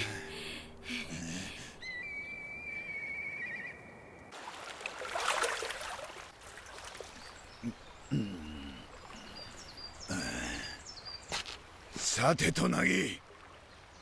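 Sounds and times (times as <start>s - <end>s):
hands splashing water: 4.4s - 7.2s.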